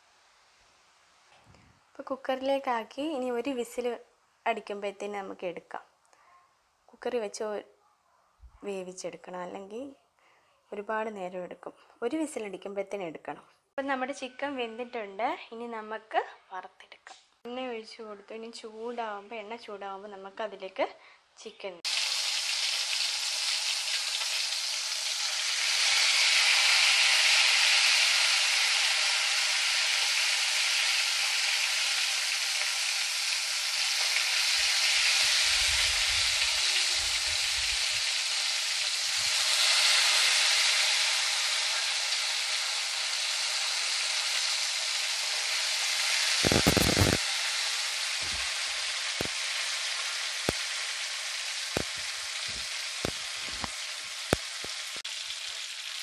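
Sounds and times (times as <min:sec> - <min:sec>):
chicken sizzling in hot oil: 0:21.8 - 0:56.0.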